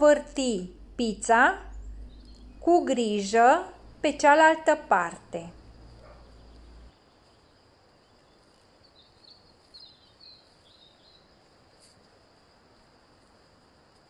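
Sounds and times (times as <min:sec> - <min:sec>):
faint high chirps: 0:01.3 - 0:04.8.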